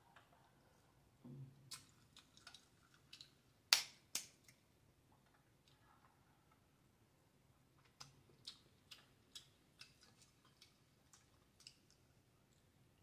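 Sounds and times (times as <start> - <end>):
wet clicks of eating by hand: 1.7 - 4.6, 7.8 - 12.0.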